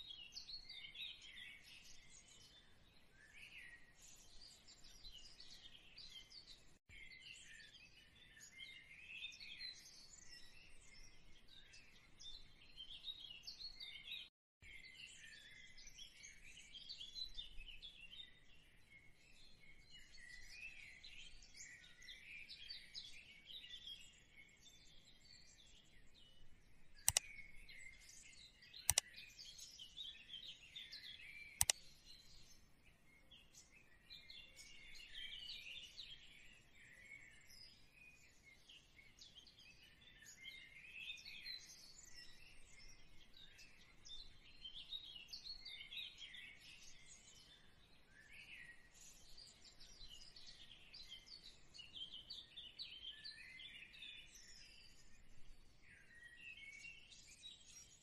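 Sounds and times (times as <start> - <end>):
small birds chirping: 0.0 - 58.0
sharp clicks: 27.0 - 27.5, 28.8 - 29.1, 31.6 - 31.9.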